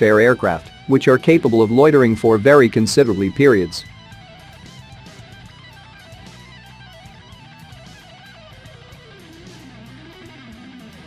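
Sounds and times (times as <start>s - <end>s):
quiet guitar music with beat: 0.0s - 11.0s.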